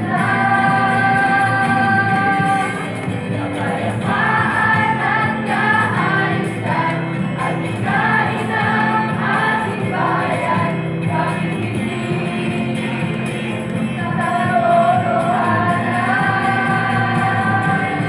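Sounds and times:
choir singing a jingle: 0:00.0 - 0:13.2, 0:14.0 - 0:18.0.

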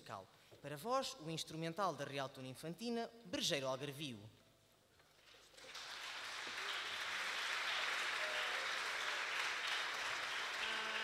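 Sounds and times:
audience applauding: 0:05.4 - 0:11.0.

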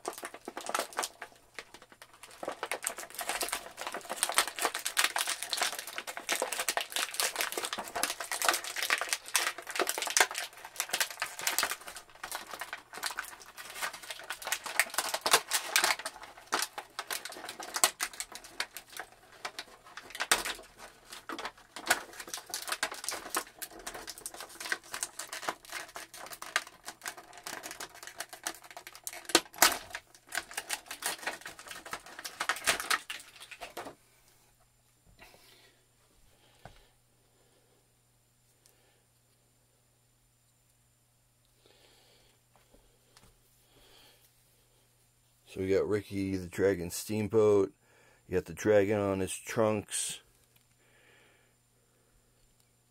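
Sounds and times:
stiff plastic packaging crinkling: 0:00.0 - 0:34.0.

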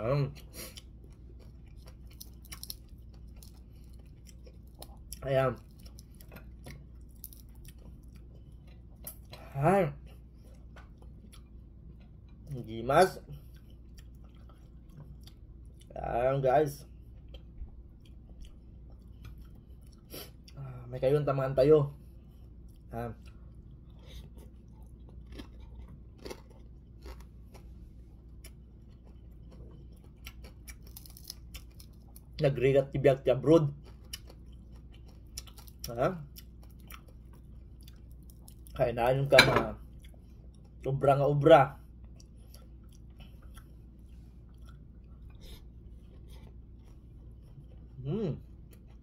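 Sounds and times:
person chewing: 0:00.2 - 0:16.1, 0:16.9 - 0:20.9, 0:21.9 - 0:32.4, 0:33.7 - 0:40.9, 0:41.8 - 0:49.0.

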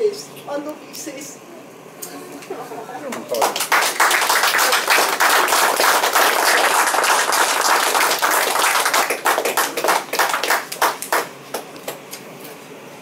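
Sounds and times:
room of people applauding: 0:03.2 - 0:12.0.

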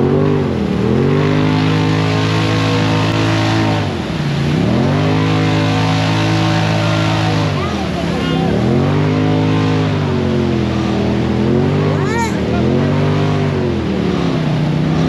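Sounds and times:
engine revving at high revs: 0:00.0 - 0:15.0
tyres churning through mud: 0:00.0 - 0:15.0.

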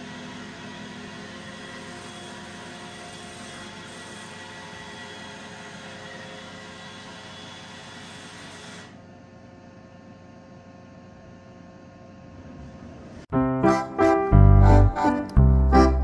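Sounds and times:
piano-like keyboard music: 0:13.3 - 0:16.0.

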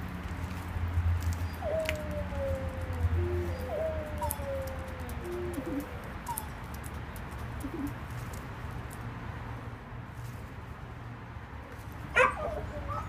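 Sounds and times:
dove cooing: 0:01.2 - 0:06.7, 0:07.6 - 0:08.0, 0:12.2 - 0:13.0.

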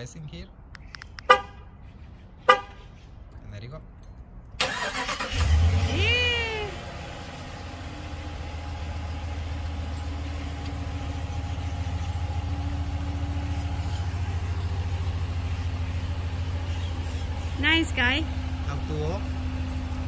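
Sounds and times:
pickup engine idling: 0:04.6 - 0:20.0.

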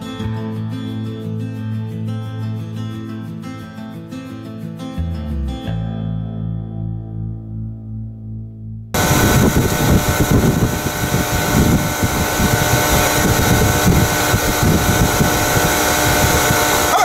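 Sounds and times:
rush of air: 0:09.0 - 0:17.0
vacuum motor hum: 0:09.0 - 0:17.0.

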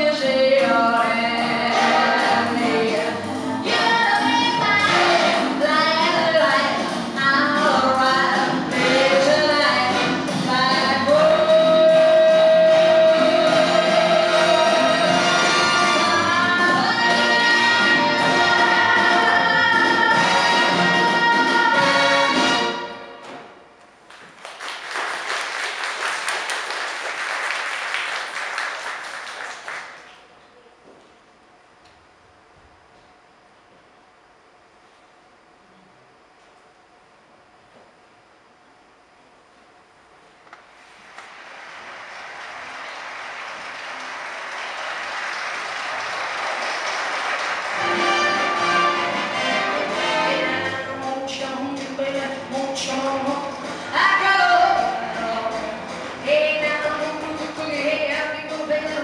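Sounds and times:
orchestral music: 0:12.2 - 0:23.1, 0:47.6 - 0:51.0
audience applauding: 0:24.0 - 0:30.3, 0:40.9 - 0:50.2.

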